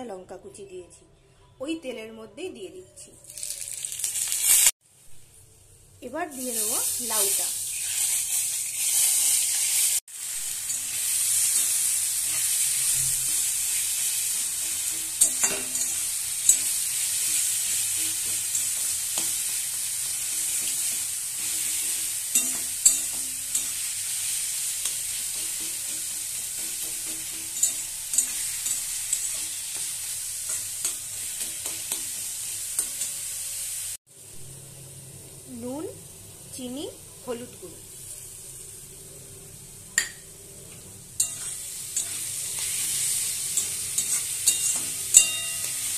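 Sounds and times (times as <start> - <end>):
vegetables sizzling in oil: 3.2 - 5.0, 6.0 - 45.9
spatula knocking and scraping pan: 10.7 - 23.8, 24.8 - 33.2.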